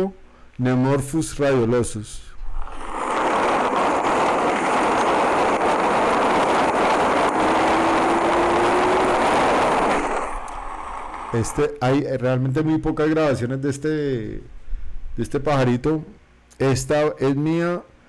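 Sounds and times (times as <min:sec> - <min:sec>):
rain hiss: 0:02.5 - 0:11.8.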